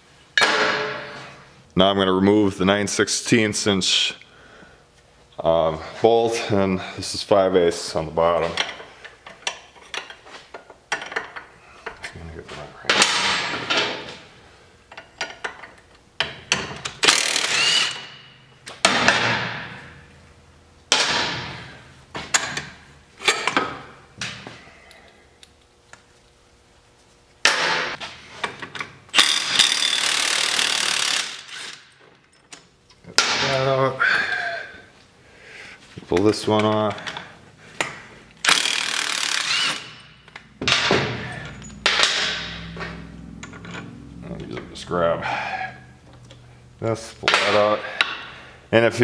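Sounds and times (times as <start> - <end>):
impact wrench bursts: 16.8 - 18.4, 29.1 - 32.0, 38.4 - 42.6.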